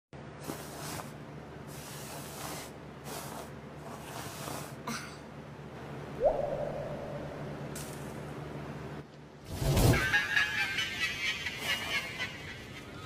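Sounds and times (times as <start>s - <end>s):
steady low hum: 0.2s - 9.6s
rising pitch sound effect: 6.2s - 7.7s.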